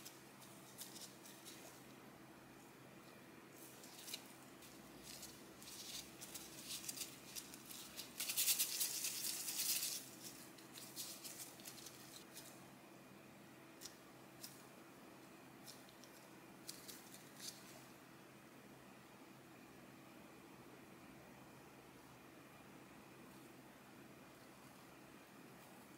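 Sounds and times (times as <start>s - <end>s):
plastic gloves crinkling: 0.0s - 1.9s, 3.5s - 12.6s, 15.6s - 17.8s.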